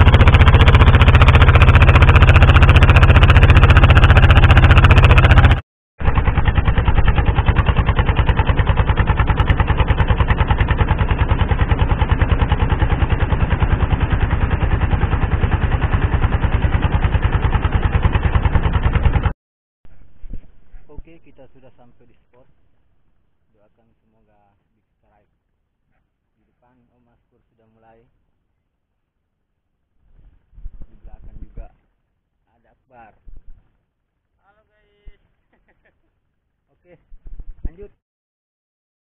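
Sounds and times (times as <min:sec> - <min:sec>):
boat engine pulsing drone: 0:00.0 - 0:19.3.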